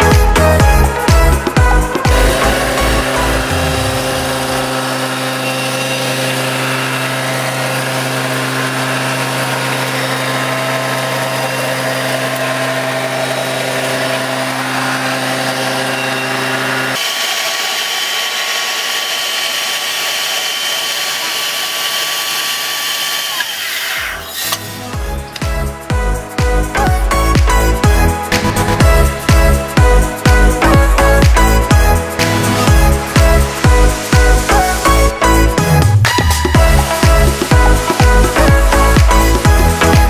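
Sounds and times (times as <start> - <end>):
hammer mill whirring rush: 0.0 - 40.0
machine hum: 0.6 - 29.3.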